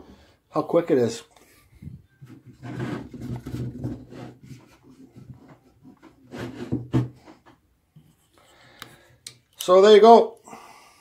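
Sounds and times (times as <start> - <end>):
hand rubbing wood: 1.6 - 8.5.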